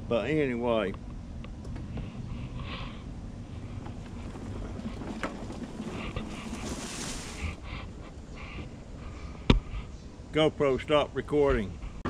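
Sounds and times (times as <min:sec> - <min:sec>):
mobility scooter rumble: 0:02.4 - 0:08.8.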